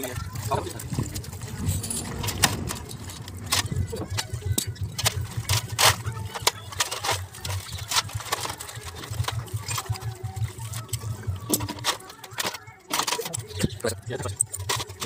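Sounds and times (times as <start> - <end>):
low hum: 0.2 - 12.0.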